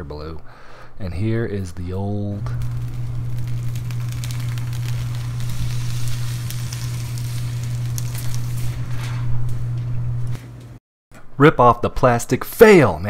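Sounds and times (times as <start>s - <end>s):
steady low hum: 0.0s - 11.4s
plastic film peeling and crinkling: 2.4s - 10.4s.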